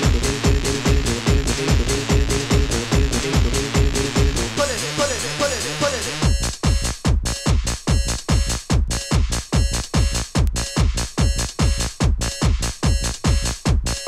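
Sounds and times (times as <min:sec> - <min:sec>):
repeating synth pattern: 0:00.0 - 0:04.6
techno kick drum: 0:00.0 - 0:04.6, 0:06.2 - 0:14.0.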